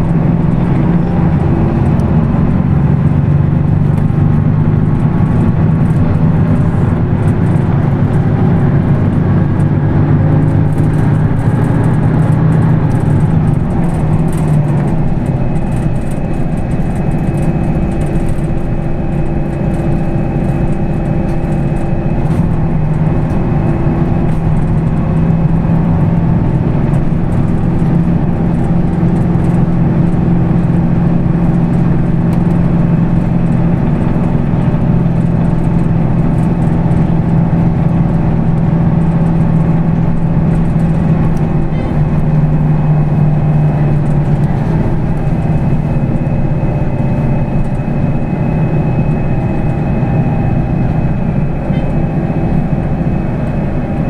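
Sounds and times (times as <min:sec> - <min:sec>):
bus engine running: 0:00.0 - 0:54.0.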